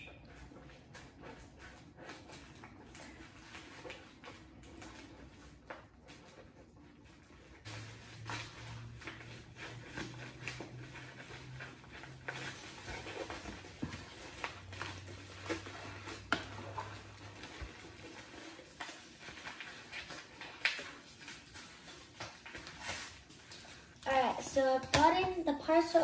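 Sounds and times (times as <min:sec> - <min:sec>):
envelope crinkling: 0:07.8 - 0:24.5.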